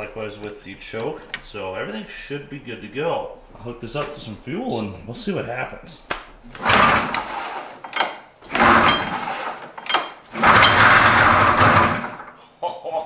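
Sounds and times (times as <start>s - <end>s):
two-stroke engine pull-started: 6.6s - 12.3s.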